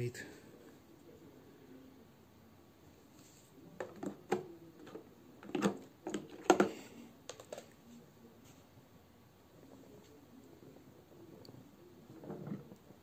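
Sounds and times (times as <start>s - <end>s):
plastic clicks and knocks: 3.8s - 7.7s.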